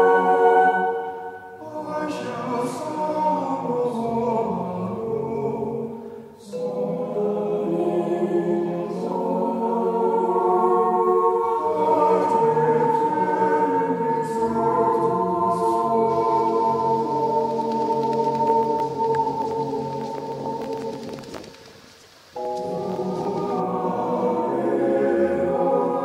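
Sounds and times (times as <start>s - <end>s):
choir singing held chords: 0.0s - 21.6s, 22.4s - 26.0s.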